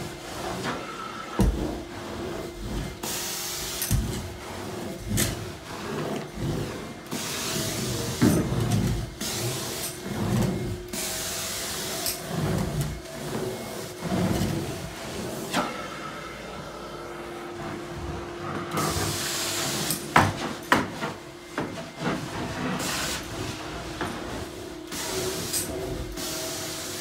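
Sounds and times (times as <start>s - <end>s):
vacuum motors whining: 0.0s - 27.0s.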